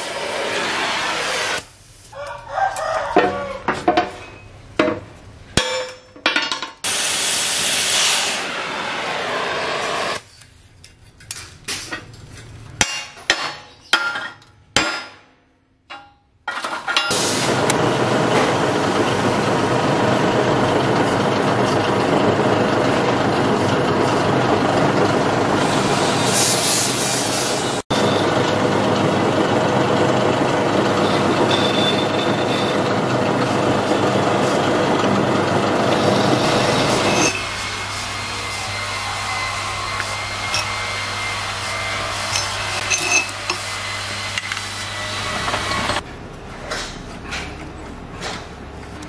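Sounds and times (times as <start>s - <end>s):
metal lathe running: 17.1s - 26.4s, 27.5s - 46.0s.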